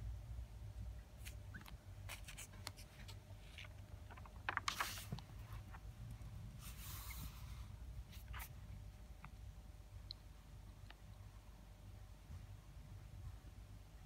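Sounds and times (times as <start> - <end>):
paper rustling: 1.2 - 5.9.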